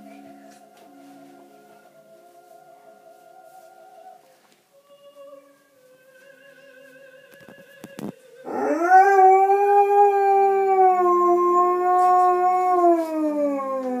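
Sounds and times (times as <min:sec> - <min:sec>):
dog howling: 0:08.4 - 0:14.0.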